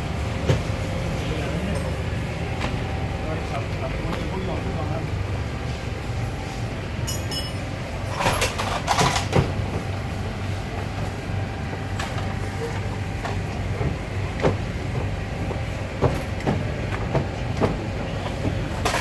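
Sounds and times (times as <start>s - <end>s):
steady low hum: 0.0s - 19.0s
hand tools clanking on metal: 7.0s - 9.3s.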